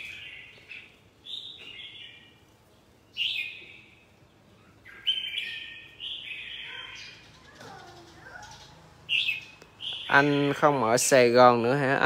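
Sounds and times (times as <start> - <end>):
bird singing warbled phrases: 0.0 - 12.0.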